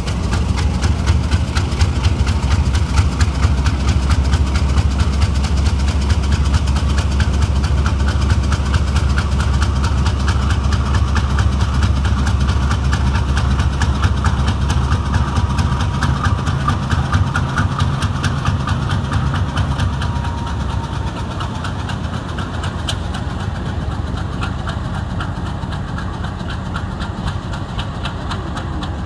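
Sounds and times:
locomotive engine rumble: 0:00.0 - 0:29.0.

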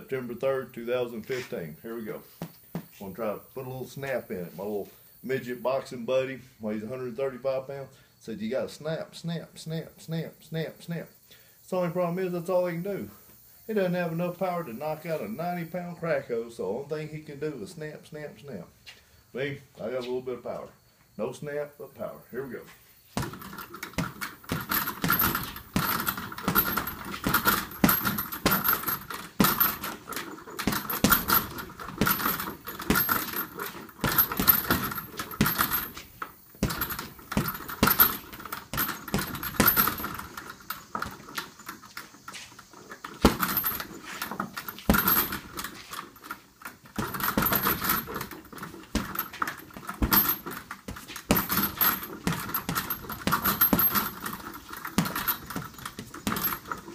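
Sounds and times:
boxing gloves punching heavy bag: 0:23.2 - 0:41.4, 0:43.2 - 0:45.9, 0:46.8 - 0:56.9
metal hardware jingling: 0:23.2 - 0:56.9.

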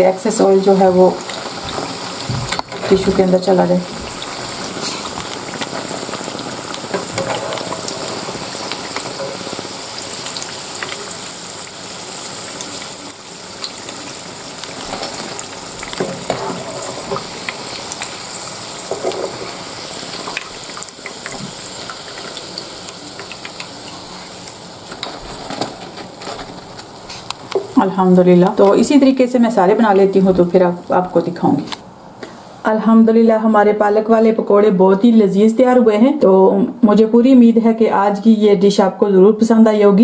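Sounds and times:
fritters sizzling in hot oil: 0:00.0 - 0:31.9
metal spoon scraping pan: 0:06.9 - 0:08.4, 0:09.0 - 0:09.6.

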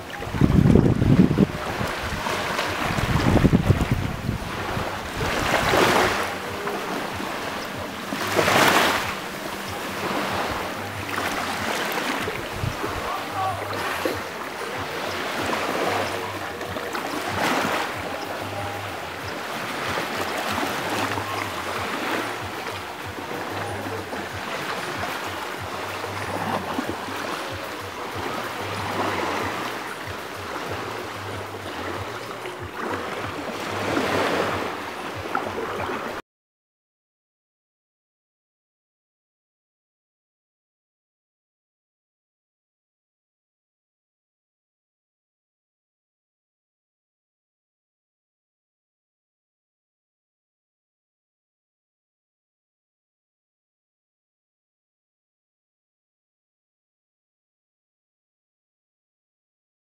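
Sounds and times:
wind buffeting microphone: 0:00.0 - 0:16.1
small waves washing onto sand: 0:00.0 - 0:36.2.

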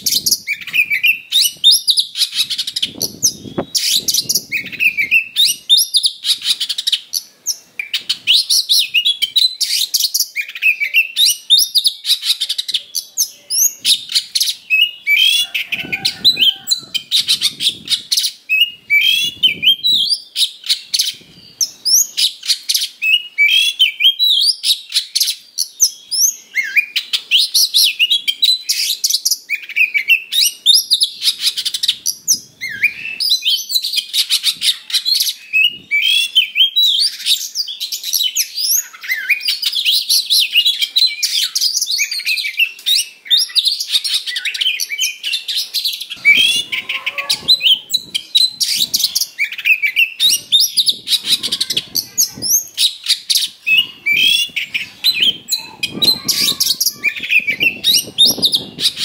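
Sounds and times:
songbird whistles and trills: 0:00.0 - 0:59.0.

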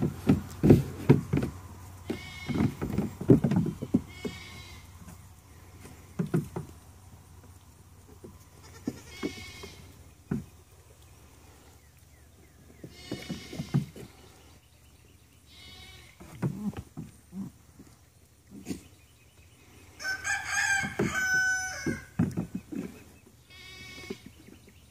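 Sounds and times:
hooves knocking on stone and wood: 0:00.0 - 0:10.7, 0:12.6 - 0:14.2, 0:20.0 - 0:23.1
goat kids bleating: 0:02.0 - 0:02.8, 0:04.0 - 0:05.2, 0:08.4 - 0:10.0, 0:12.8 - 0:14.0, 0:15.5 - 0:17.5, 0:23.4 - 0:24.4.

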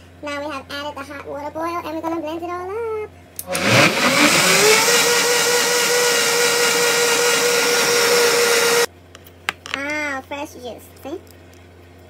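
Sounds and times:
blender motor whining: 0:03.4 - 0:08.9.

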